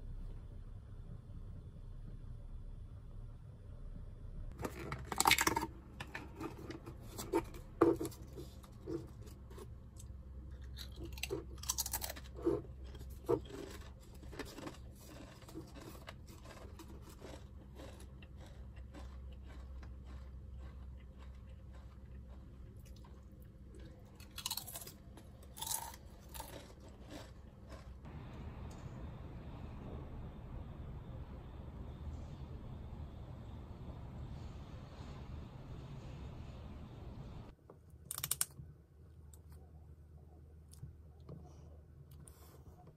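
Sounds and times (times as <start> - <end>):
chips crunching while chewing: 4.7 - 6.8, 7.5 - 28.0, 38.1 - 38.5.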